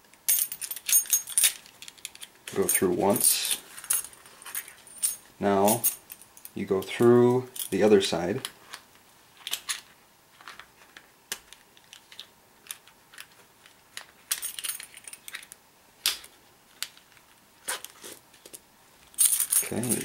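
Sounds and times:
metal buckle clicking and jingling: 0.3 - 6.6, 19.2 - 20.0.

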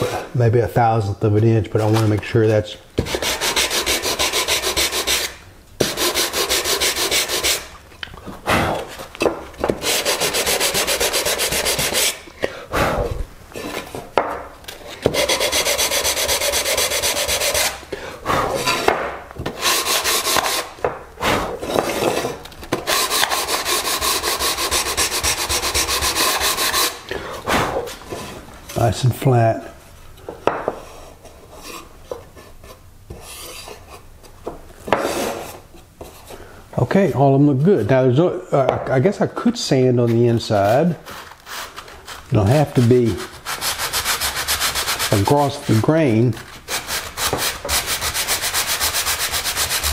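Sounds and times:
sandpaper rubbing on wood: 3.0 - 7.7, 9.8 - 12.2, 15.1 - 17.8, 19.6 - 21.5, 22.8 - 27.0, 40.5 - 49.9.

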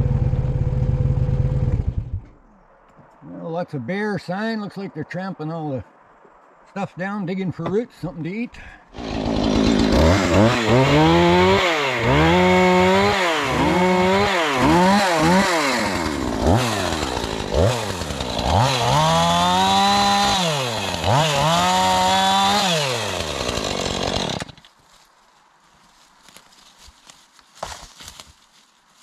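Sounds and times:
chainsaw revving: 8.9 - 24.6.

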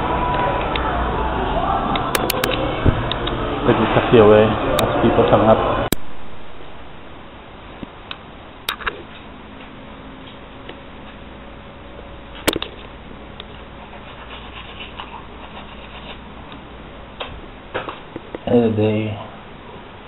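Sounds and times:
steady low hiss: 5.8 - 20.0.

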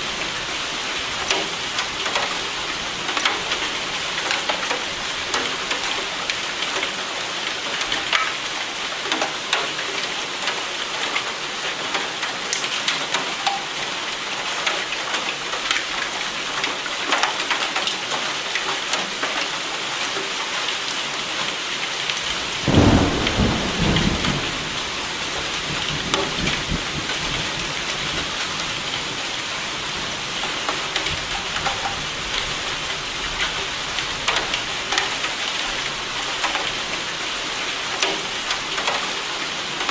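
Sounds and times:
close raindrops striking: 0.0 - 39.9
steady rain falling: 0.0 - 39.9
thunderclap rumbling: 22.6 - 28.2.

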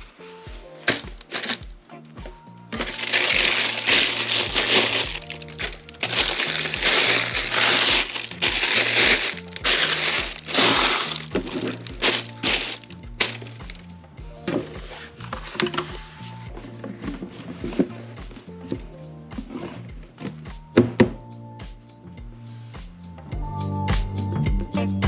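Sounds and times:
background music with steady beat: 0.0 - 25.0
tissue paper crinkling: 0.9 - 1.6, 2.8 - 13.8.

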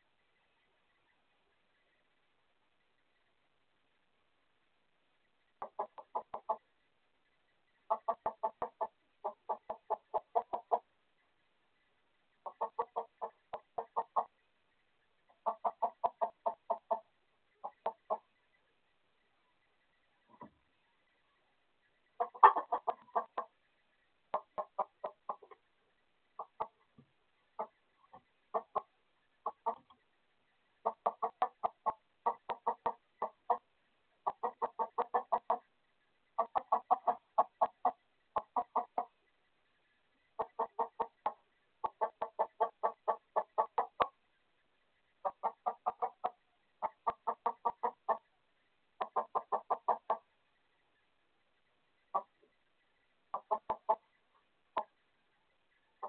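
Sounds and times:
chickens clucking: 5.5 - 6.7, 7.3 - 11.0, 12.4 - 14.4, 15.2 - 18.4, 19.4 - 30.1, 30.7 - 35.7, 36.3 - 39.4, 40.3 - 44.2, 45.2 - 48.3, 48.9 - 50.3, 51.9 - 56.0.

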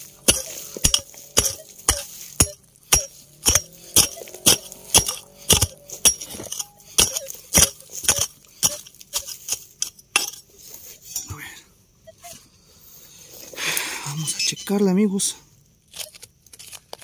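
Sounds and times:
metal digging tool striking stony ground: 0.0 - 11.4.

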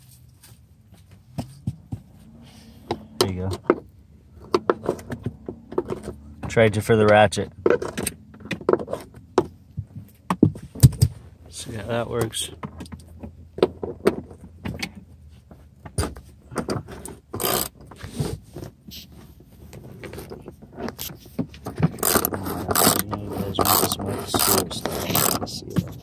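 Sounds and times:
ratchet pawl clicking: 17.4 - 17.7, 22.0 - 23.0, 23.6 - 25.4.

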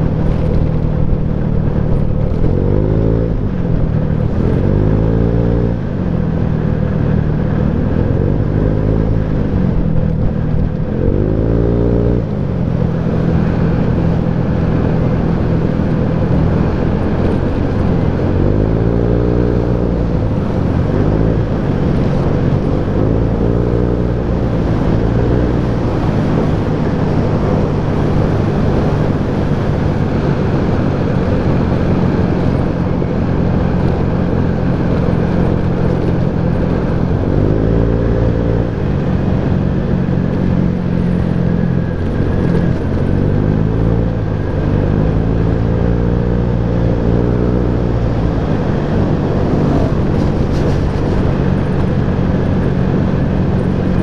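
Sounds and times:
wind and road noise: 0.0 - 54.0
scooter engine revving: 16.2 - 54.0.

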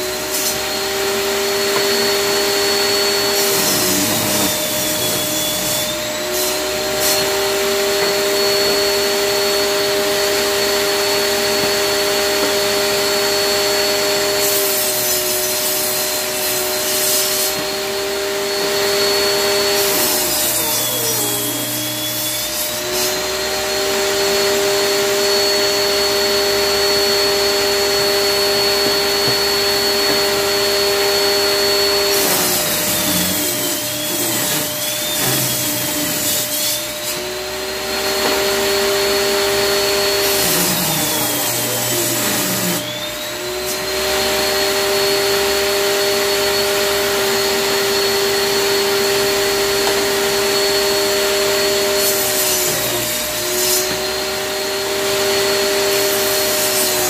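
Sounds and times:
table saw whining: 0.0 - 57.0
saw blade ripping wood: 0.1 - 9.4, 25.3 - 45.7.

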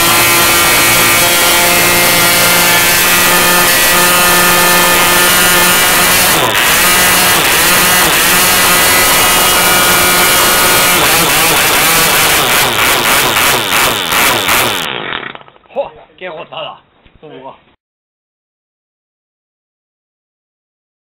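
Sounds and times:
model airplane engine running: 0.0 - 15.0.

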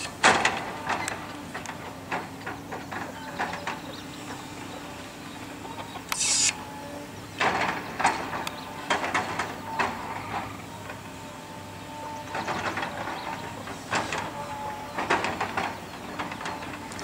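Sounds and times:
excavator engine running: 0.0 - 17.0
brief hiss: 6.1 - 6.6.

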